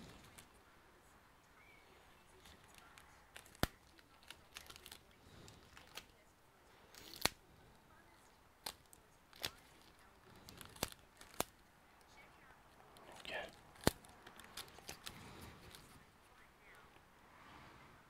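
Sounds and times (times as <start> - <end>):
gloved fingers rustling: 12.9 - 16.1.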